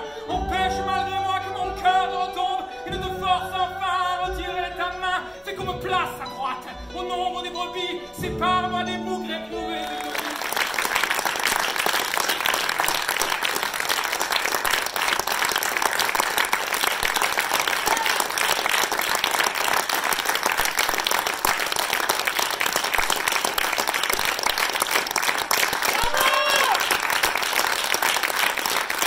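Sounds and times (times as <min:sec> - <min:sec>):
audience applauding: 0:09.8 - 0:29.0.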